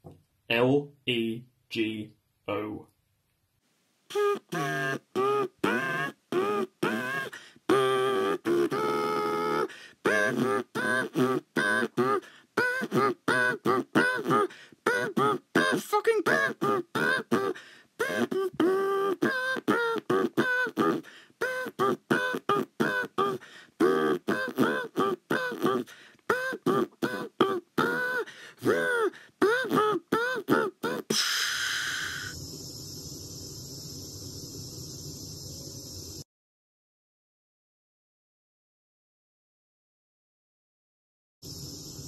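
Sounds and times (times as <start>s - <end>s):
choppy vocal sounds: 4.1s - 32.7s.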